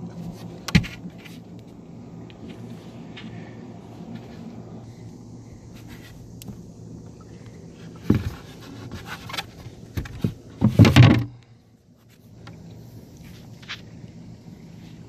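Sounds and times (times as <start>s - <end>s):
wooden board knocking and scraping: 0.7s - 1.4s, 8.0s - 11.4s.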